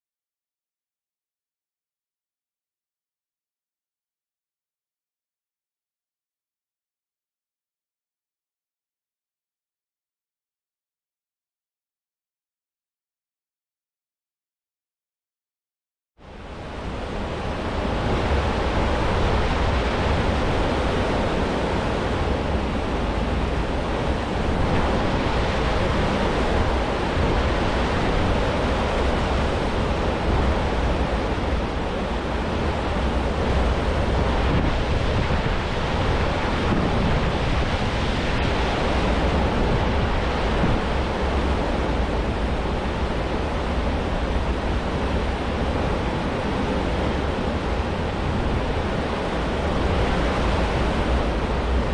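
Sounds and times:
foaming water rushing: 16.3 - 51.9
wind buffeting microphone: 16.3 - 51.9.

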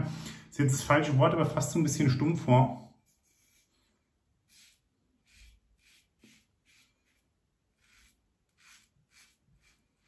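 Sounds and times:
razor scraping stubble: 4.5 - 10.0.

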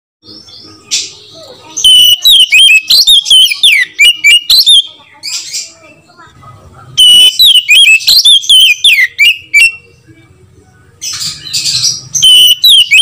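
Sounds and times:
bird whistled song: 1.8 - 5.7, 7.0 - 9.9, 11.1 - 13.0.

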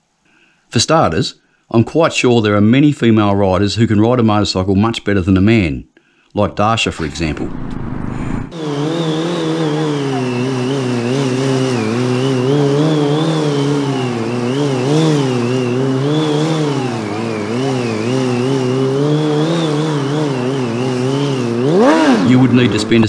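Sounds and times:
motorcycle engine revving: 7.0 - 23.0.

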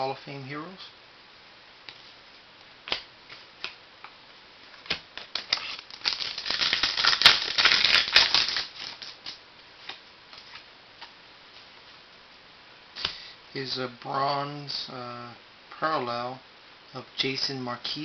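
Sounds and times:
cards and packaging rustling: 4.8 - 10.6.

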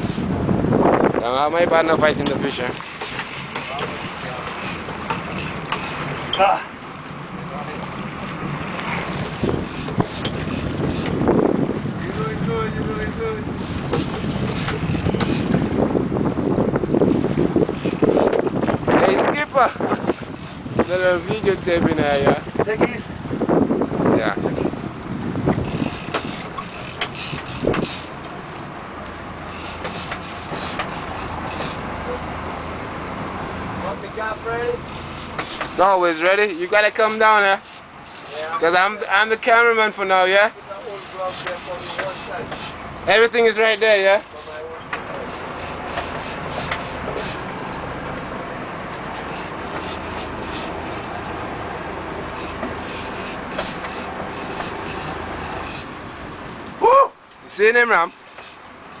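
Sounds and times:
boat engine humming: 0.0 - 59.0
water noise: 0.0 - 59.0
wind: 0.0 - 59.0
water splashes: 1.5 - 15.9
short sharp clicks and knocks: 29.7 - 31.8, 35.3 - 35.8.

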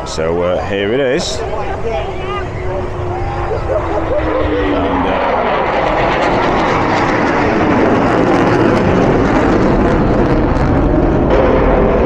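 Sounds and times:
fighter jet engine roar: 0.0 - 12.0.

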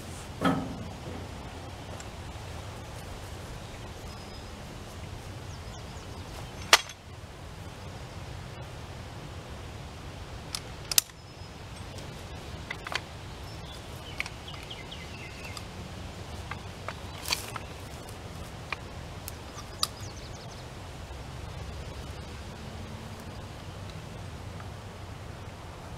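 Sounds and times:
low background rumble: 0.0 - 25.9
metal jack clicking and clinking: 6.6 - 7.0, 16.4 - 18.1.

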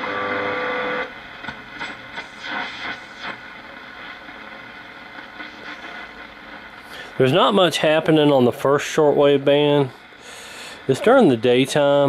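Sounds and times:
radio static hiss: 0.5 - 12.0
radio signal sweeps: 1.8 - 4.2, 5.4 - 6.3.

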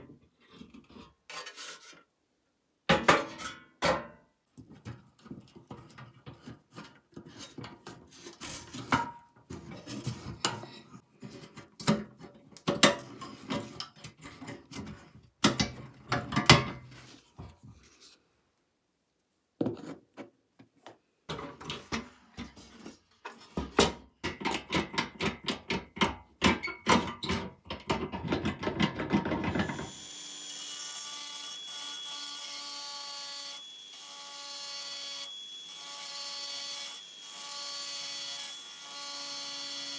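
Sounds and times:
drill running: 29.6 - 39.9.

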